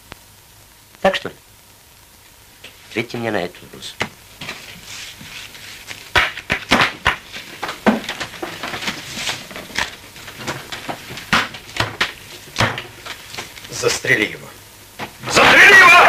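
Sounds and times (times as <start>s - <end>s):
sharp knocks and clatters: 6.1s - 13.5s.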